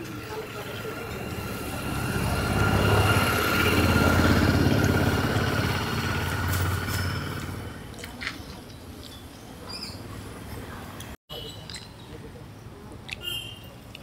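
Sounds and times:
vehicle engine passing by: 0.0s - 8.0s.

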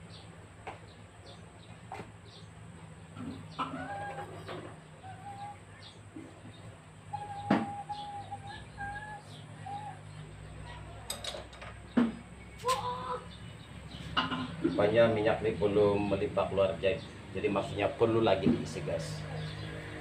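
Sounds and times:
steady low hum: 0.0s - 20.0s
chicken clucking: 3.2s - 9.0s.

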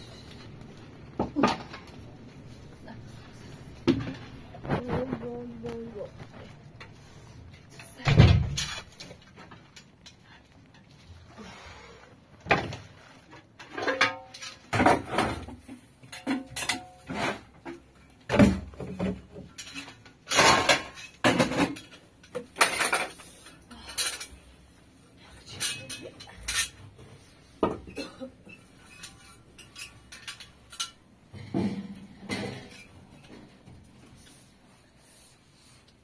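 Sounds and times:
dishes knocking and clattering: 1.1s - 2.0s, 3.8s - 5.5s, 13.5s - 23.2s, 27.6s - 33.9s.

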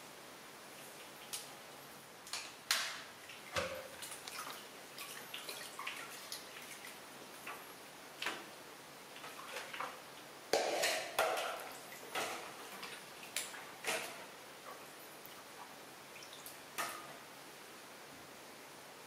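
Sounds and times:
water splashing in plastic basin: 2.7s - 7.6s, 9.1s - 10.0s.

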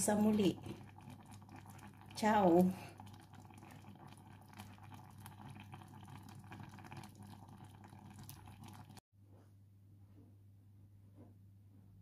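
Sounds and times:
stew simmering and bubbling: 0.0s - 9.0s.

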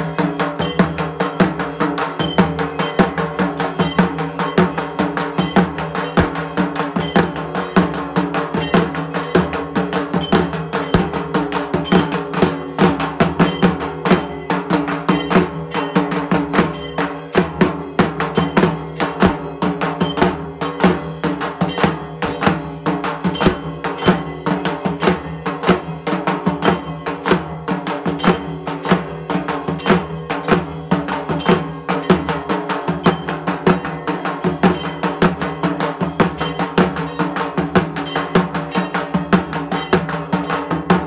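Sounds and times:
clanging metal bell strikes: 0.0s - 41.0s
fast drumming: 0.0s - 41.0s
steady ringing: 0.0s - 41.0s.

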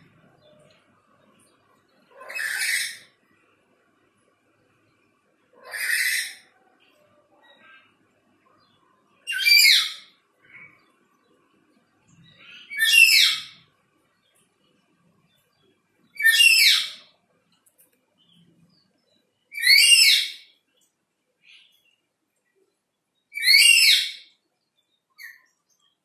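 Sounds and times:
parrot calling loudly: 2.2s - 3.1s, 5.6s - 6.5s, 9.3s - 10.1s, 12.6s - 13.6s, 16.2s - 17.0s, 19.6s - 20.4s, 23.4s - 24.2s.

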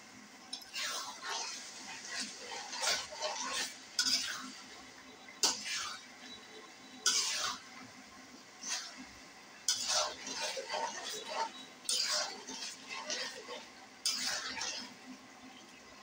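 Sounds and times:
metal spoon scraping a pan: 0.6s - 4.8s, 5.4s - 6.4s, 7.0s - 7.8s, 8.6s - 15.2s.

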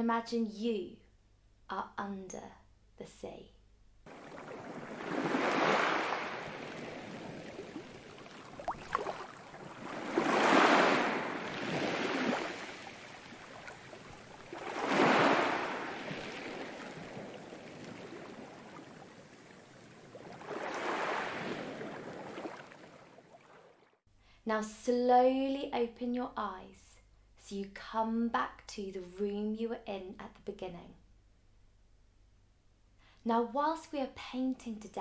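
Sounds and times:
sea waves washing on shore: 4.1s - 23.8s.

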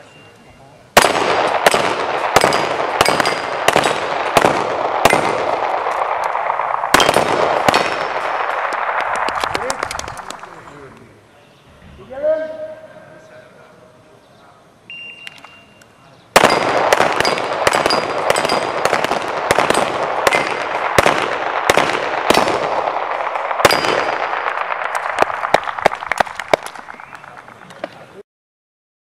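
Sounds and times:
handguns rapid fire: 1.0s - 10.6s, 16.4s - 27.5s
electronic start beep: 14.9s - 15.8s
steel plates ringing: 16.4s - 18.8s.

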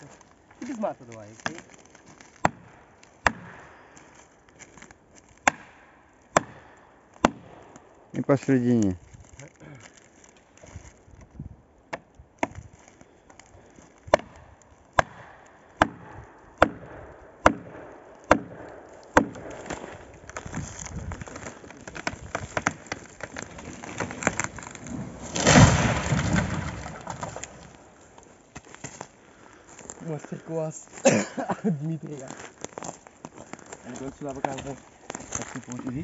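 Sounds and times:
tree trunk cracking and splintering: 0.0s - 11.4s, 12.0s - 30.1s, 32.1s - 36.0s
tree crashing to the ground: 19.1s - 29.0s.

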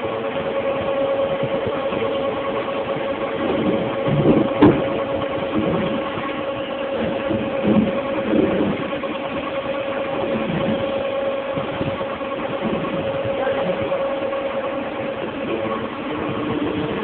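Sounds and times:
machine hum with whine: 0.0s - 17.0s.

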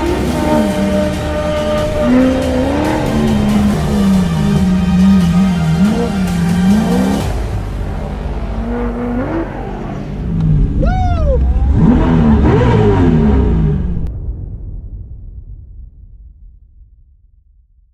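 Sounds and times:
race car engine revving: 0.0s - 14.1s.

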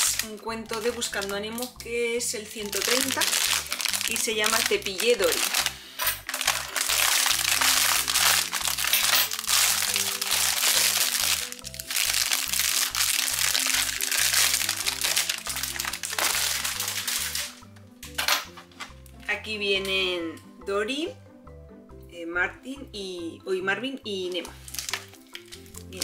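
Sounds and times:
plastic bag crinkling: 0.0s - 1.7s, 2.6s - 17.6s, 24.5s - 26.0s.

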